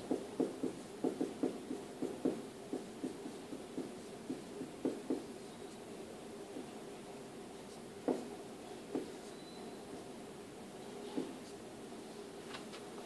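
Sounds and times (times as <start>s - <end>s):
marker writing on whiteboard: 0.0s - 6.9s, 7.5s - 10.1s, 10.9s - 11.7s.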